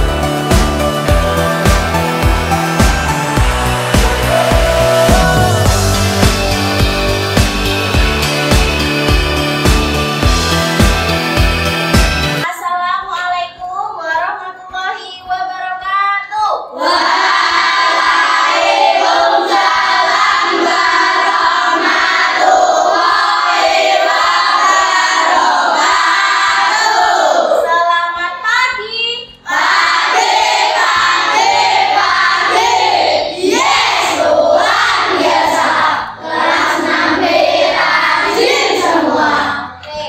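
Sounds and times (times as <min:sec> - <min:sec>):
children singing in chorus: 0:16.8 - 0:27.8, 0:29.5 - 0:39.7.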